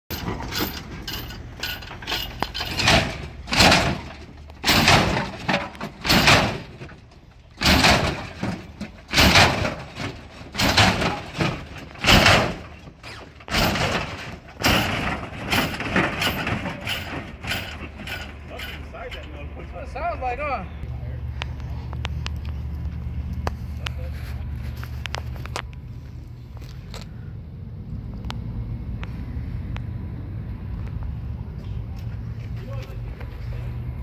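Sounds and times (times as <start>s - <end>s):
car suspension banging and clattering: 0.1s - 20.0s.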